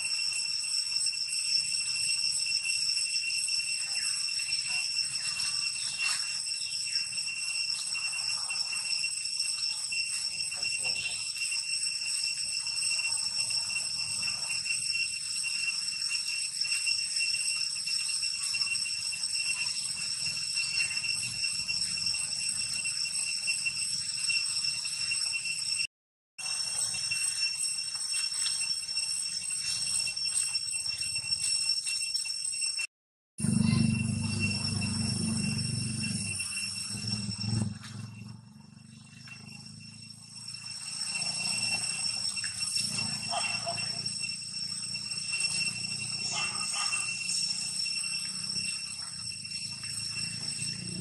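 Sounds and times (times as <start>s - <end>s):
cicadas droning: 0.0s - 51.0s
low hum: 33.4s - 39.9s.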